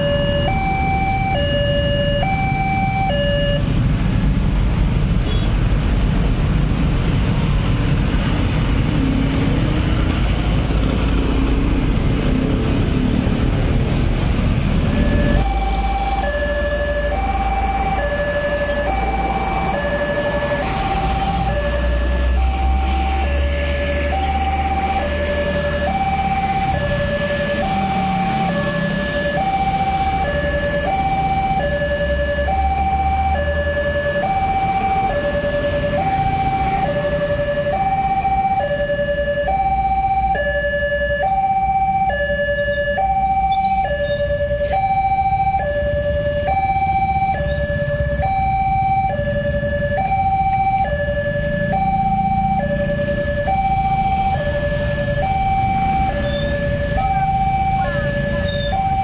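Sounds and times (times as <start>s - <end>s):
level crossing two-tone alarm: 0.0s - 3.7s, 14.9s - 59.0s
motorbike engines running: 43.4s - 59.0s.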